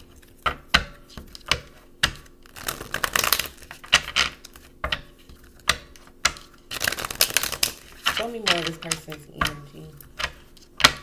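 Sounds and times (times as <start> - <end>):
cards shuffling: 2.4 - 5.6, 6.4 - 11.0.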